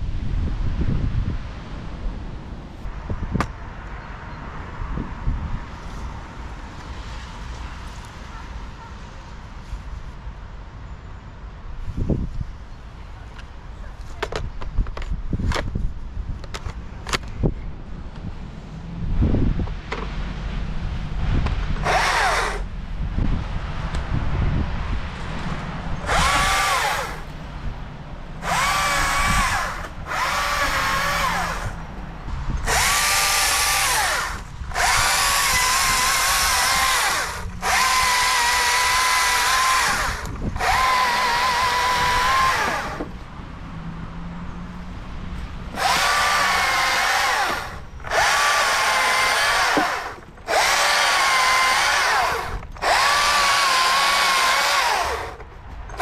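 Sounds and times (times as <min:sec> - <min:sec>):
battery chainsaw cutting branch: 0:21.8 - 0:22.7, 0:26.0 - 0:27.3, 0:28.4 - 0:31.8, 0:32.6 - 0:43.1, 0:45.7 - 0:56.0.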